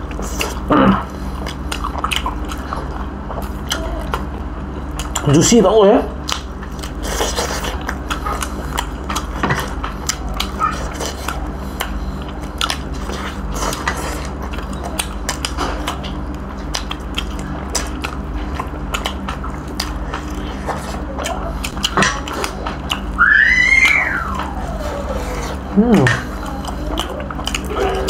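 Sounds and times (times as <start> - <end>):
person chewing meat: 0.0 - 28.0
wet mouth clicks and smacks: 6.2 - 7.0.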